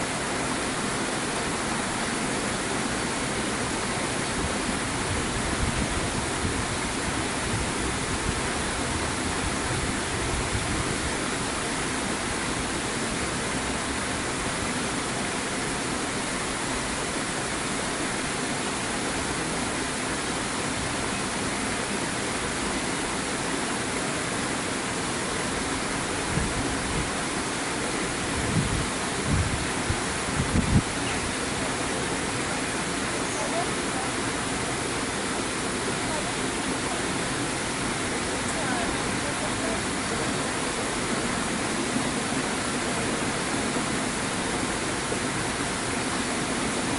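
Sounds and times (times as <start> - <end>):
rushing water: 0.0 - 46.9
wind buffeting microphone: 5.0 - 11.2, 26.2 - 27.1, 28.3 - 31.2.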